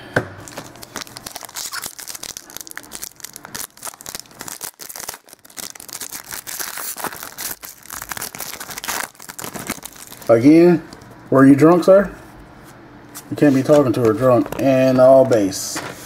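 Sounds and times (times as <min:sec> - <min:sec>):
foil wrapper crinkling: 0:00.4 - 0:11.2.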